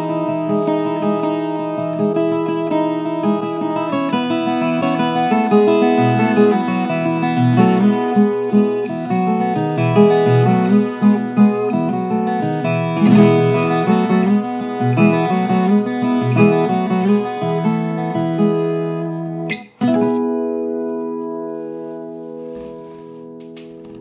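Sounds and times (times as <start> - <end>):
fingerpicked guitar melody: 0.0 - 24.0
guitar chord strummed: 0.0 - 24.0.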